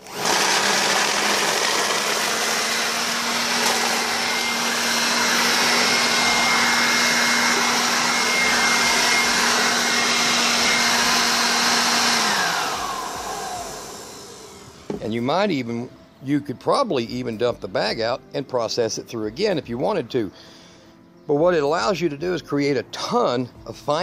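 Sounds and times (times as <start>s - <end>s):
blower vacuum whine: 0.0s - 15.5s.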